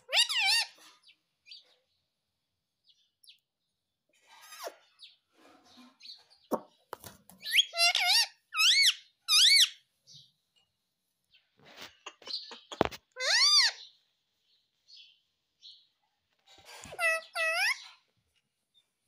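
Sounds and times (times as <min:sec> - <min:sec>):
parakeet wavering high calls: 0:00.0 - 0:00.8, 0:07.4 - 0:09.8, 0:13.2 - 0:13.9, 0:16.8 - 0:17.9.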